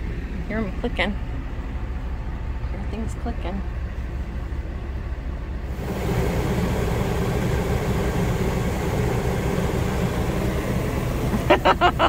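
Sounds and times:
air conditioner running: 0.0 - 12.0.

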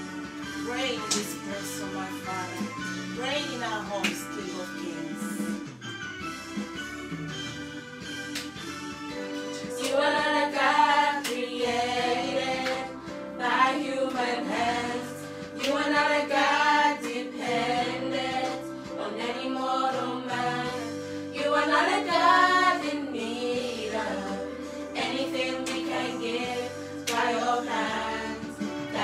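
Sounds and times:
held instrumental accompaniment: 0.0 - 29.0
people singing worship song: 9.2 - 29.0.

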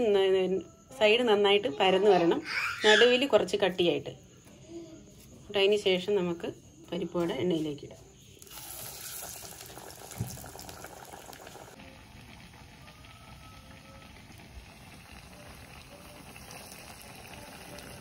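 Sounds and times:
fritters sizzling in hot oil: 8.4 - 18.0.

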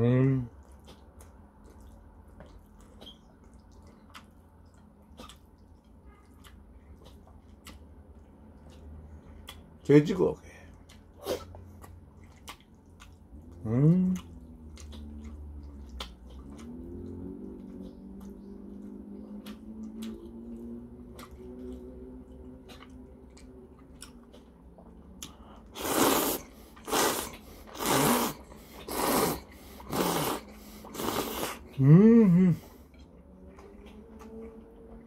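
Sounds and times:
quiet chewing: 0.4 - 35.0
man slurping noodles: 25.8 - 31.8
man humming mmm: 31.0 - 32.7.

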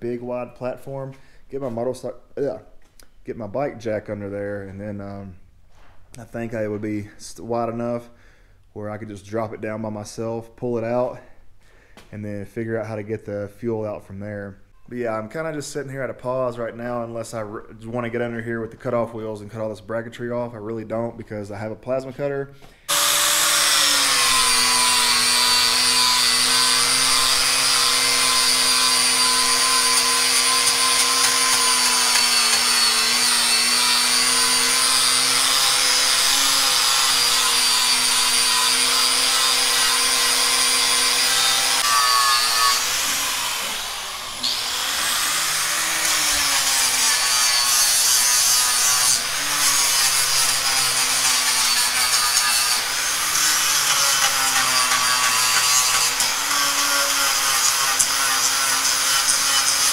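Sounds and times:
angle grinder on metal: 22.9 - 59.9.

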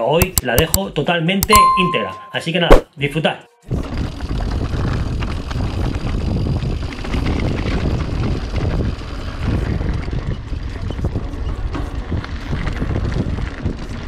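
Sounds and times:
wind rumble on microphone: 3.7 - 14.0
bike clicks and rattles: 3.8 - 14.0.

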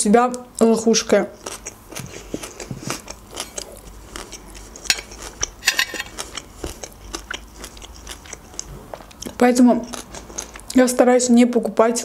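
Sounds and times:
chewing: 1.4 - 10.8
fork scraping a ceramic plate: 4.8 - 6.2.

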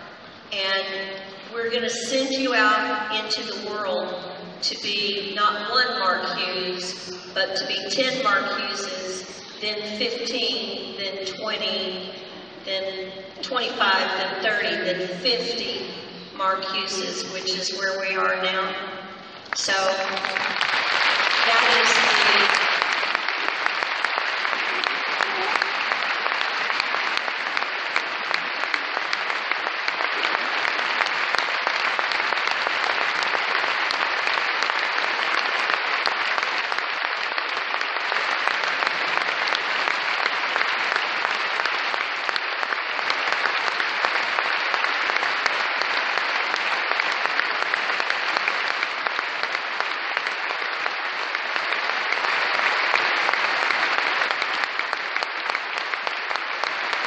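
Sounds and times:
audience applauding: 19.9 - 57.0.

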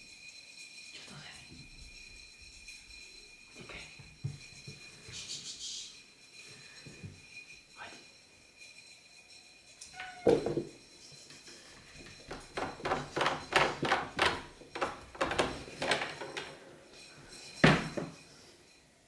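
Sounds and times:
door knocking and rattling: 12.0 - 16.6.

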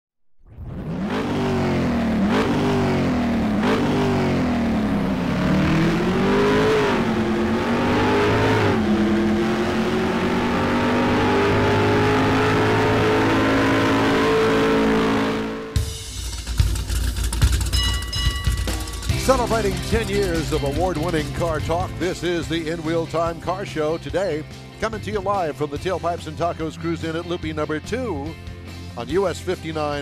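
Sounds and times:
car engine revving hard: 0.6 - 17.7.

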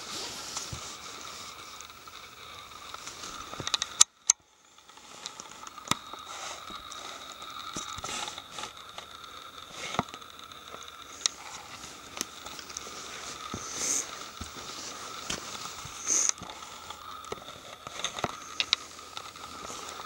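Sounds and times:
faint steady hiss: 0.0 - 20.0
footsteps on leaves and snow: 11.8 - 16.7.

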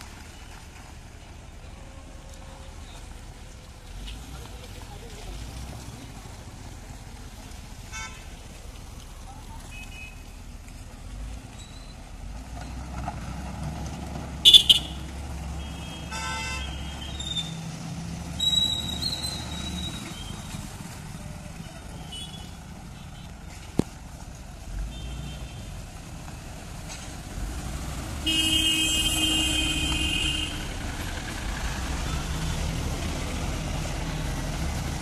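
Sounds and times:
diesel engine rumbling: 0.0 - 35.0
street traffic: 0.0 - 35.0
vehicle horns tooting: 7.9 - 8.4, 9.7 - 10.4, 14.4 - 17.6, 22.0 - 23.4, 24.8 - 25.7, 28.2 - 30.9.

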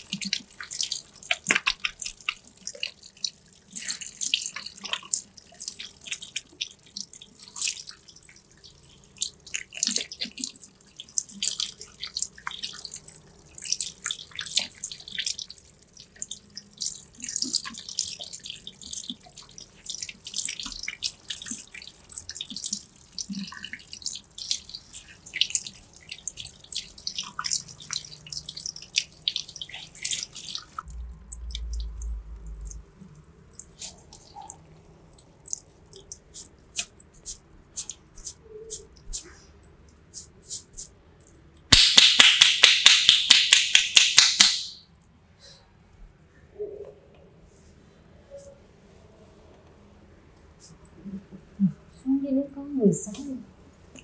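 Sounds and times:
low rumble: 30.9 - 33.0
fingers rubbing wet hair: 35.4 - 39.4, 40.0 - 40.9.

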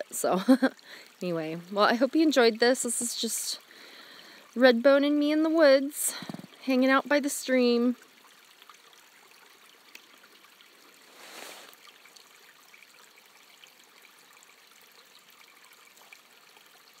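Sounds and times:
stream trickling: 0.0 - 17.0.

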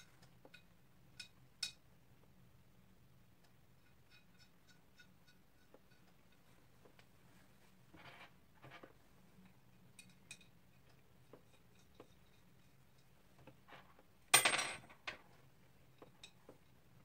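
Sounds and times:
metal hardware clicking and clinking: 14.4 - 15.2.

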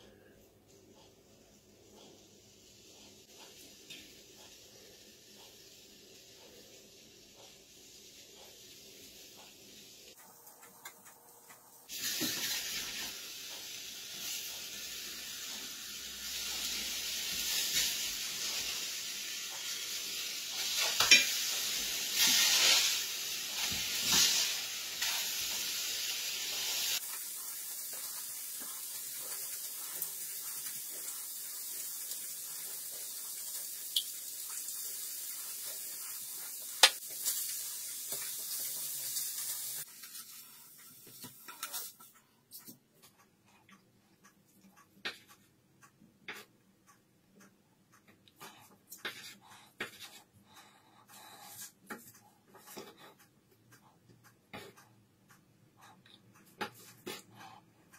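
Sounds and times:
fish sizzling in a frying pan: 11.9 - 42.0.

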